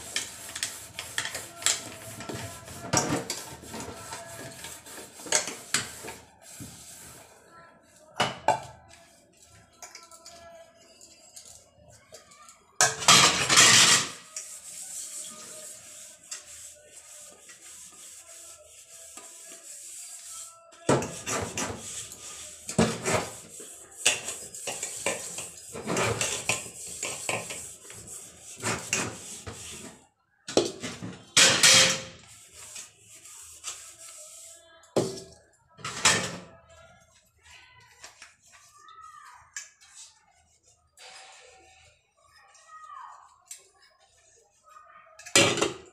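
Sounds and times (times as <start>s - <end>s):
dish scrubbing: 0.0s - 7.4s, 12.8s - 30.0s
steel utensils clattering in sink: 12.8s - 14.3s, 24.0s - 27.6s.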